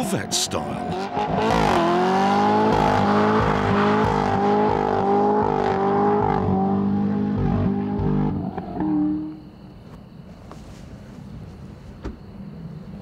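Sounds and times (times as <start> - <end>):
car engine at high revs: 0.0 - 9.4.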